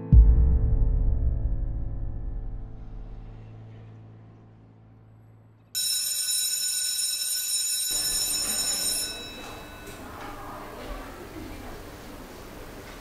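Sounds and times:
shrill electronic alarm tone: 5.8s - 10.0s.

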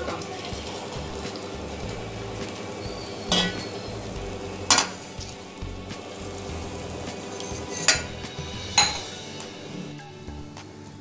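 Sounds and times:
water pouring into pot: 0.0s - 10.0s
metallic clinks against pot: 3.3s - 3.9s, 7.4s - 8.2s, 8.8s - 9.2s.

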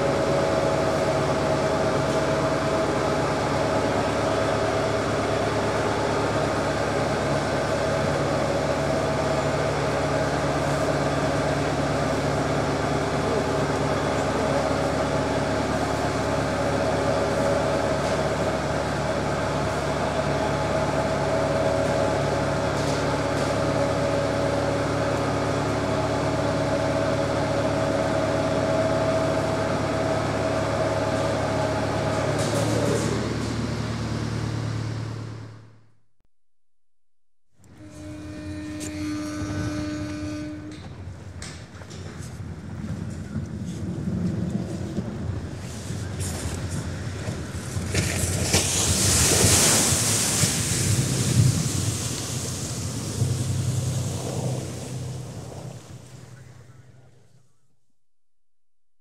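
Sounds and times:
boat engine droning: 0.0s - 35.9s, 37.6s - 57.7s.

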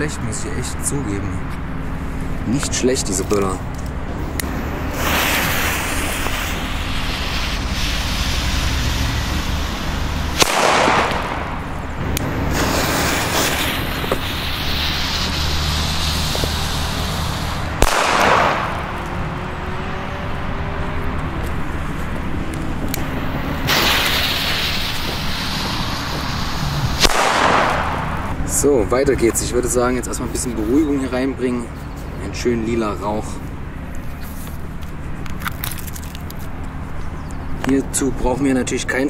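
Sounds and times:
hiss: 4.2s - 19.0s, 23.0s - 28.3s
firecracker bangs with echo: 10.3s - 11.8s, 17.8s - 19.1s, 23.6s - 28.4s.

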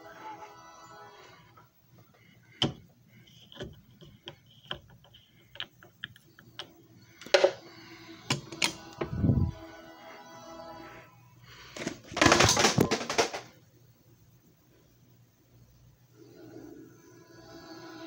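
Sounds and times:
plastic clatter: 11.8s - 13.5s.

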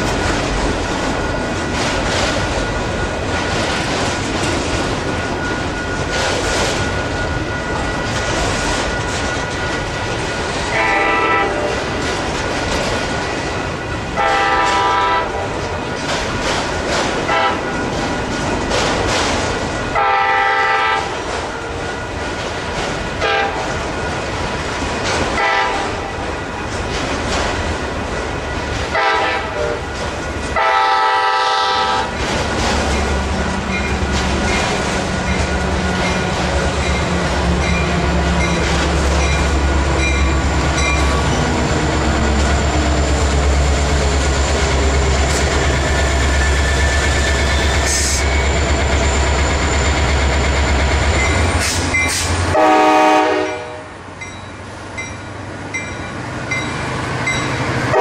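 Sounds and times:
rail noise: 0.0s - 58.0s
locomotive air horn blasts: 10.7s - 11.9s, 14.2s - 15.6s, 17.3s - 17.8s, 19.9s - 21.2s, 23.2s - 23.7s, 25.4s - 26.1s, 28.9s - 29.9s, 30.6s - 32.1s, 52.5s - 54.0s
locomotive diesel engine rumbling: 26.3s - 53.3s.

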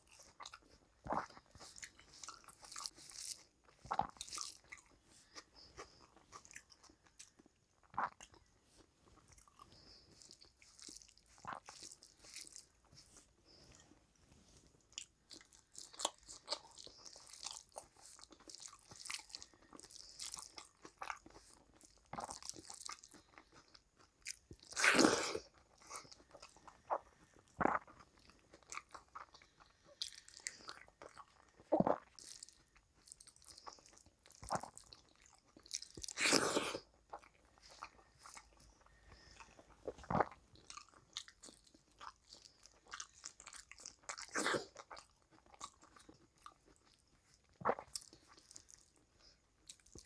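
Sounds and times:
chewing and mouth noises: 0.0s - 50.0s.

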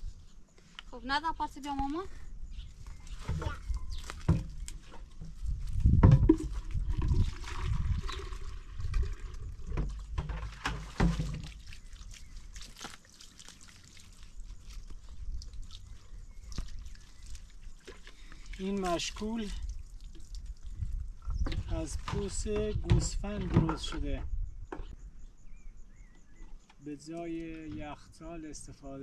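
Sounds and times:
water sloshing in a waterskin: 3.1s - 22.4s
handling knocks and thumps: 3.2s - 7.4s, 9.7s - 11.6s, 21.3s - 24.9s.

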